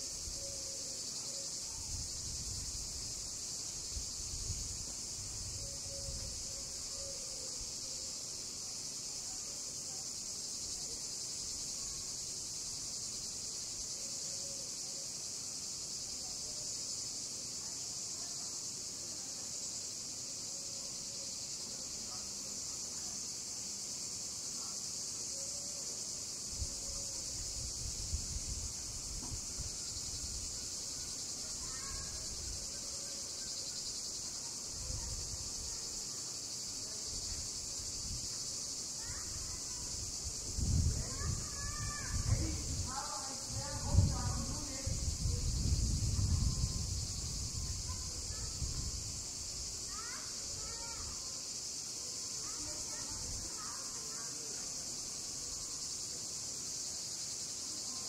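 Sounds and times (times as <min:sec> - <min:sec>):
cicadas buzzing: 0:00.0 - 0:58.0.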